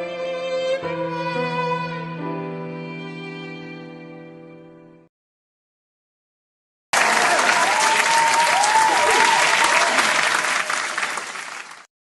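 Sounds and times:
audience applauding: 7.0s - 11.9s.

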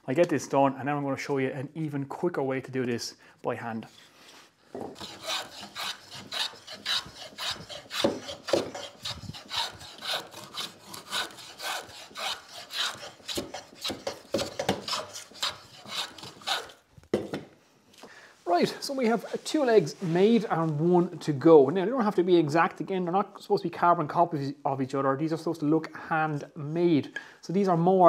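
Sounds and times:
hand plane shaving wood: 5.0s - 16.8s.

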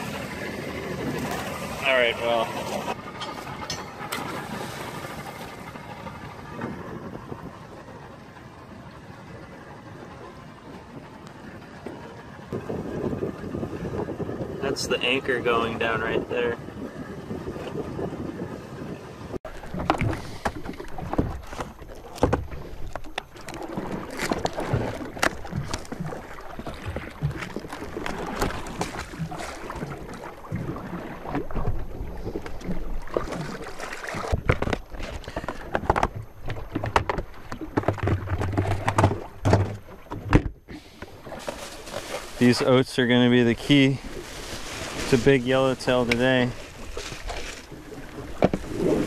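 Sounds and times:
deck hatch lid opening: 19.5s - 30.3s, 34.2s - 41.5s
gear knocking on boat deck: 19.5s - 40.6s
bag rustling: 41.3s - 42.8s, 43.6s - 47.8s.

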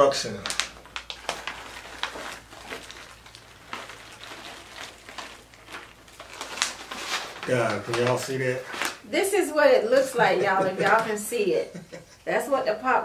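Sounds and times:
snack bag rustling: 0.0s - 9.1s, 9.8s - 11.2s.

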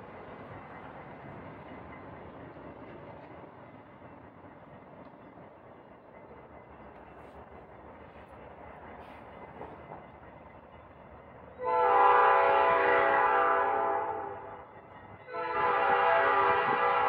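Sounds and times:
locomotive air horn blasts: 11.6s - 14.5s, 15.3s - 17.0s.

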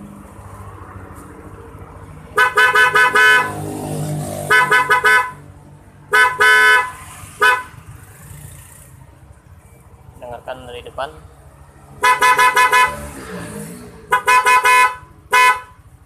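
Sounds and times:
electric horn honking: 2.4s - 3.7s, 4.4s - 5.4s, 6.1s - 7.7s, 12.0s - 13.0s.

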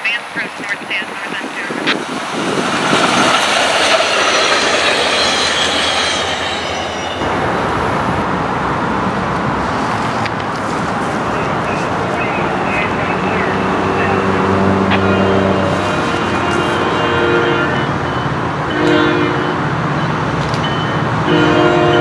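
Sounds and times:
heavy low rumble: 0.4s - 17.1s
train wheels rolling on rail: 0.4s - 22.0s
faint high squeal: 4.6s - 7.4s.

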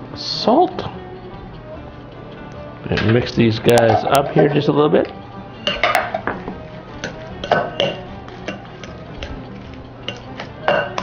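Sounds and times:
utensil scraping glass bowl: 6.9s - 11.0s.

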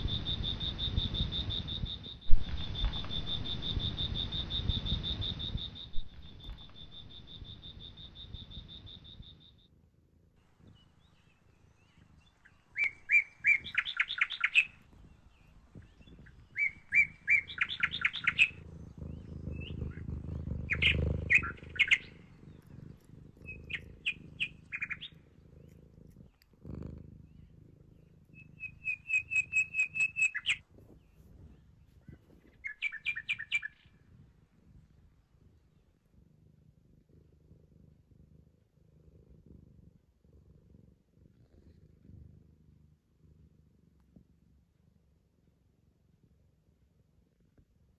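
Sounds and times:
cat purring: 0.0s - 47.9s
songbird trilling: 10.7s - 31.6s, 32.6s - 33.9s.

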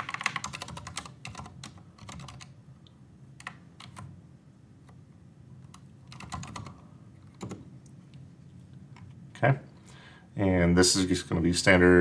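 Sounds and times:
typing on computer keyboard: 0.0s - 2.6s, 3.4s - 4.1s, 5.6s - 7.6s.

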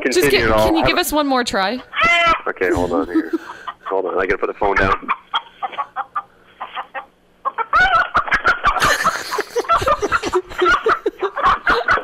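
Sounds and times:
rooster clucking and calling: 4.8s - 8.8s.

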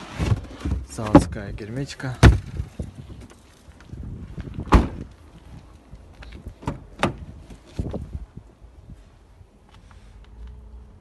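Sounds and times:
car door thumping shut: 4.6s - 5.1s.

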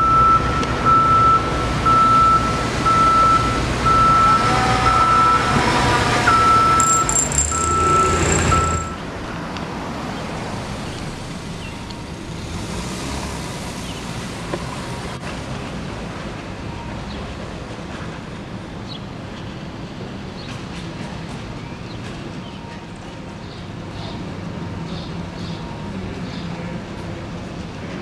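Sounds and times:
engine rumble: 0.0s - 16.5s
street traffic: 0.0s - 28.0s
high electronic beeps: 6.3s - 9.0s.

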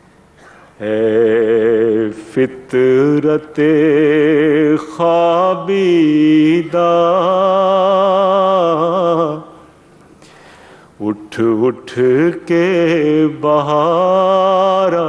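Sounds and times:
man singing unaccompanied: 0.8s - 9.6s, 11.0s - 15.0s
man breathing: 10.2s - 11.0s.

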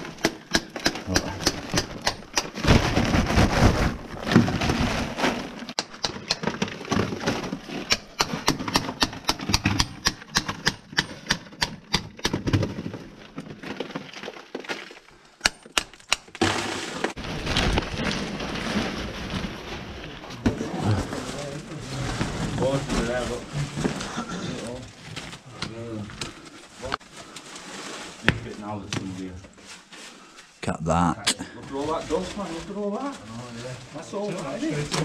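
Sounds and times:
rough scraping: 0.0s - 10.0s, 16.4s - 30.4s.

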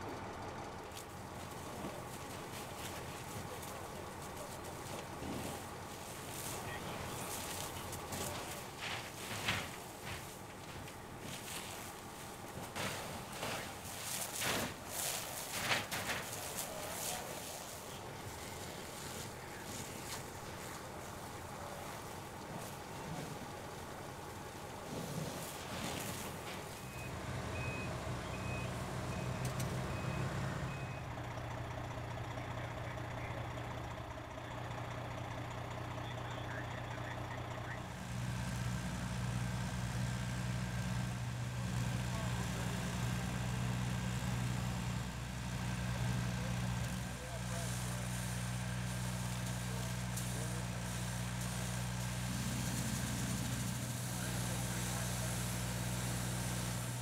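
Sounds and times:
heavy engine droning: 0.0s - 57.0s
truck reversing alarm beeps: 26.6s - 37.9s.

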